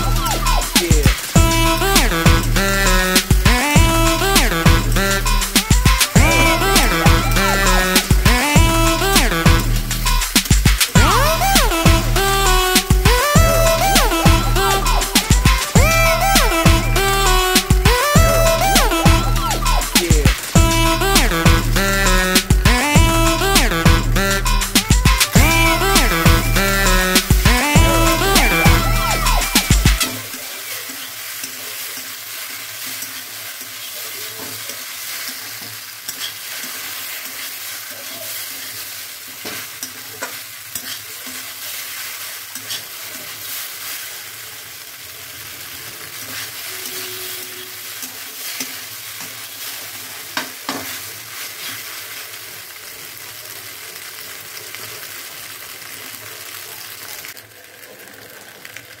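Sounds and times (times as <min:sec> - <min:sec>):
pasta sizzling in a wok: 0:00.0 - 0:59.0
metal spatula scraping a pan: 0:29.2 - 0:44.2, 0:46.0 - 0:51.9.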